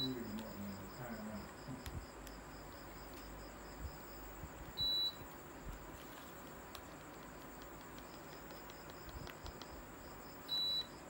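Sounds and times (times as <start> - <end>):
air conditioner beep: 0.0 - 1.4, 3.9 - 6.7, 7.4 - 11.0
faint steady hum: 0.0 - 11.0.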